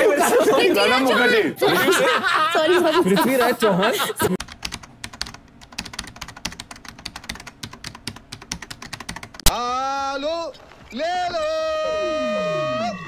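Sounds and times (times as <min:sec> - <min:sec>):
keyboard typing clicks: 0:04.4 - 0:09.5.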